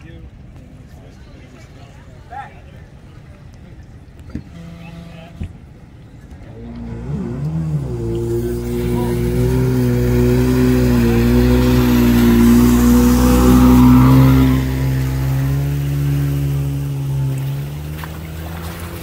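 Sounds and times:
outboard motor running: 0:04.3 - 0:19.0.

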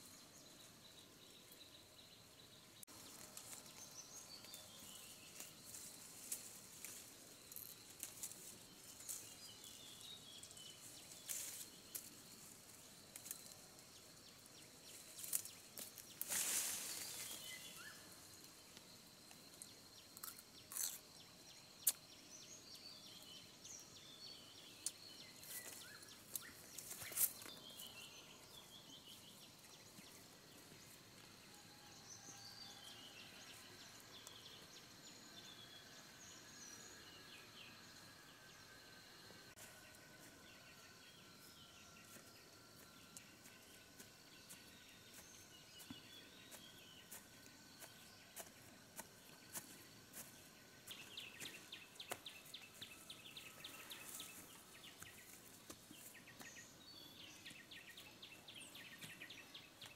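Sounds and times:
insect drone: 0:00.0 - 0:59.9
leafy branches snapping and rustling: 0:15.2 - 0:17.6
birds chirping: 0:32.1 - 0:59.9.

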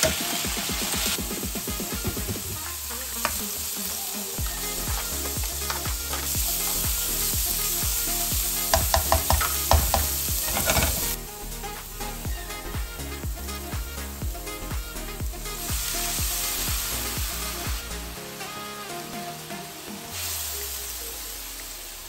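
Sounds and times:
garlic and onion sizzling in oil: 0:00.0 - 0:22.0
spatula scraping wok: 0:01.8 - 0:12.2.

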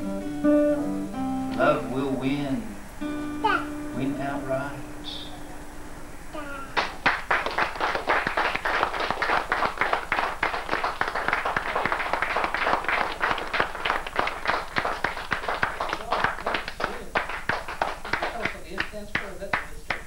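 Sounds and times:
audience applauding: 0:06.8 - 0:20.0.

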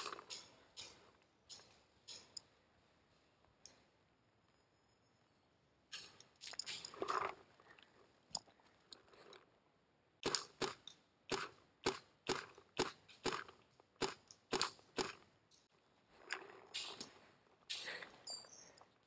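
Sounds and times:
paintball marker firing shots: 0:10.2 - 0:15.2.

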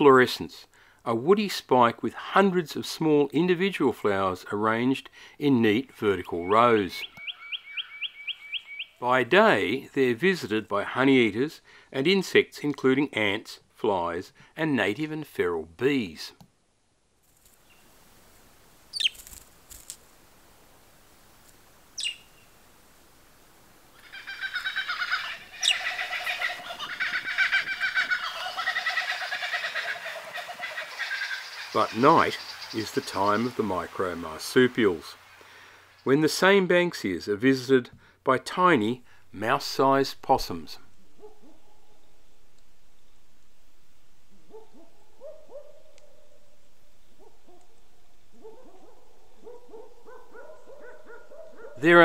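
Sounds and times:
birds chirping chorus: 0:04.7 - 0:10.1, 0:22.0 - 0:22.6, 0:24.0 - 0:36.1
descending bird whistle: 0:06.4 - 0:09.0, 0:22.0 - 0:22.4
night animal hooting calls: 0:06.4 - 0:09.0, 0:22.0 - 0:22.4, 0:24.0 - 0:32.7, 0:44.4 - 0:51.9.

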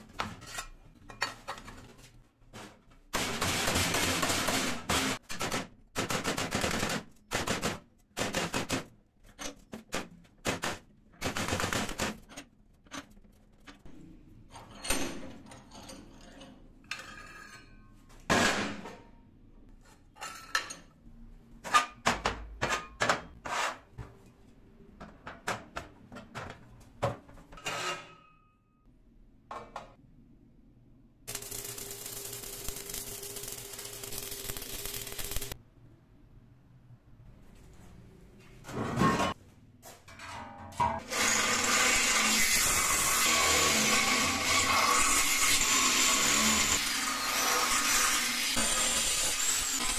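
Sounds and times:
arc welding crackling hiss: 0:31.3 - 0:35.6.

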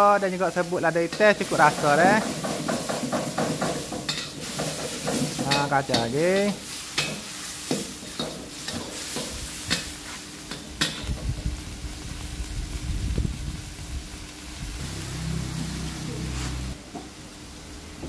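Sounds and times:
food sizzling: 0:00.0 - 0:18.0.

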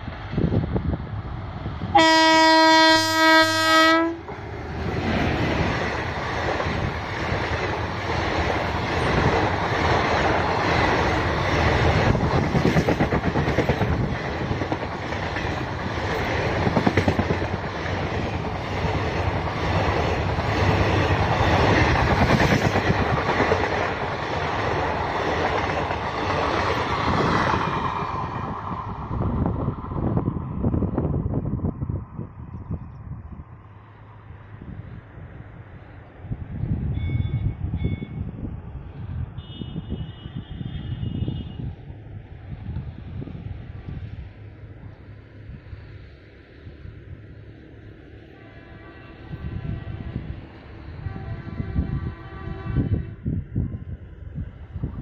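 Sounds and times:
train coaches rushing past: 0:00.0 - 0:32.3
locomotive horn blast: 0:01.9 - 0:04.3, 0:39.4 - 0:41.7, 0:48.3 - 0:50.4, 0:51.0 - 0:53.3.

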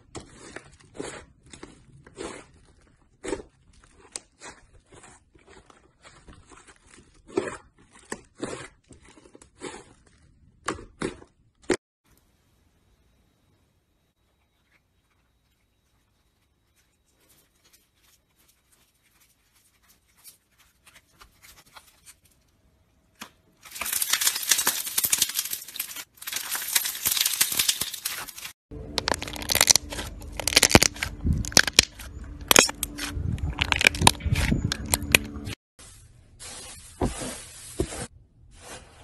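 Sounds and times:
slime crackling and popping: 0:23.7 - 0:35.3.

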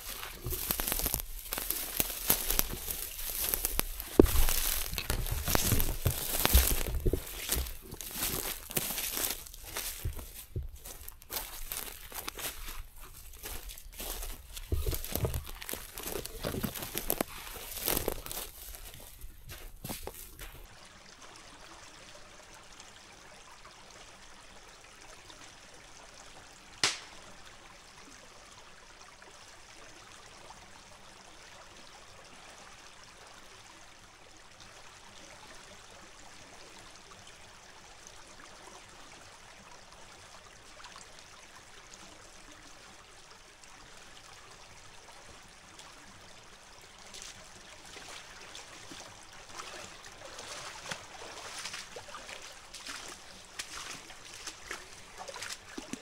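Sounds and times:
footsteps crunching dry leaves: 0:00.0 - 0:20.6
creek running: 0:00.0 - 0:56.0.

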